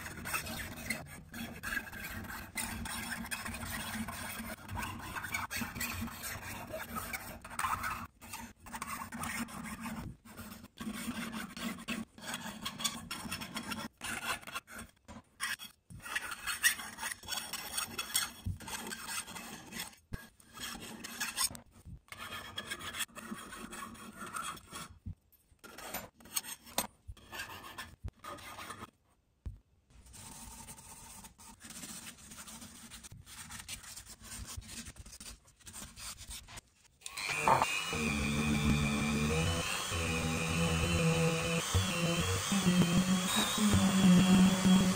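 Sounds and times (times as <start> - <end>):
file rasping on metal ring: 0.0 - 21.5, 22.1 - 25.0, 37.4 - 44.9.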